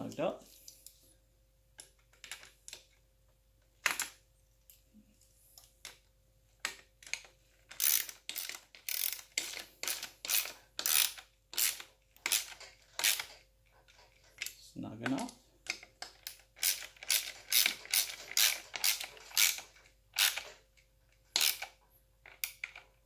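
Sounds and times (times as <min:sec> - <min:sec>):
ratcheting wrench clicking: 0:07.0 - 0:13.3, 0:16.2 - 0:20.5, 0:21.3 - 0:22.8.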